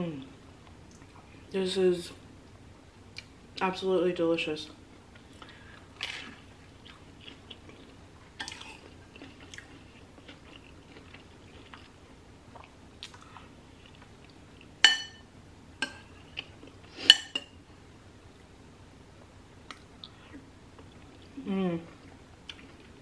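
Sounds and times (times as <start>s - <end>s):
chewing: 5.2s - 14.7s.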